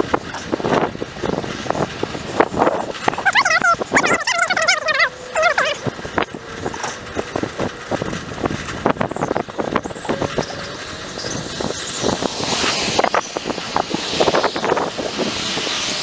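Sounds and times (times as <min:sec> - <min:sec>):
bicycle clicks and rattles: 0:00.0 - 0:16.0
bicycle road noise: 0:00.0 - 0:16.0
wind on microphone: 0:00.0 - 0:16.0.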